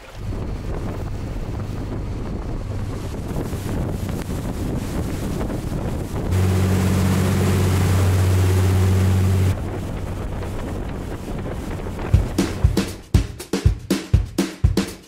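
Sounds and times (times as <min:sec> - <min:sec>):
boat engine drone: 0:00.0 - 0:13.1
water hissing off hull: 0:00.0 - 0:13.1
wind rushing over microphone: 0:00.0 - 0:13.1
music drum beats: 0:11.9 - 0:15.0.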